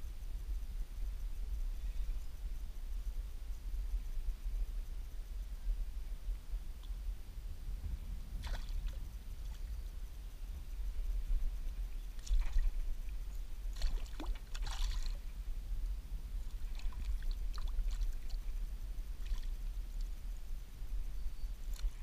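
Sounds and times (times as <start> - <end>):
steady low rumble: 0.0 - 22.0
fish splashing in water: 8.4 - 9.0, 13.7 - 15.2.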